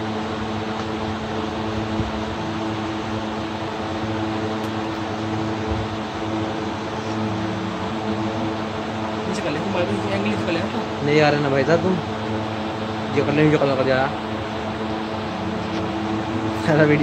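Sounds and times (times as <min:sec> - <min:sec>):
mechanical hum with rushing noise: 0:00.0 - 0:17.0.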